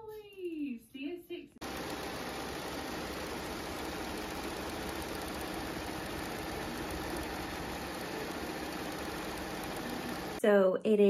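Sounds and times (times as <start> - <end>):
embroidery machine stitching rattle: 1.6 - 10.4
machine hum: 1.6 - 10.4.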